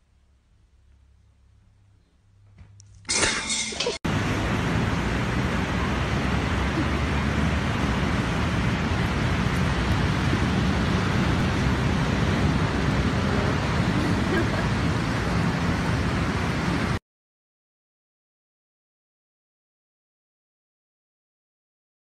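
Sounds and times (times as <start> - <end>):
ocean surf: 4.0 - 17.0
wind on microphone: 4.2 - 17.0.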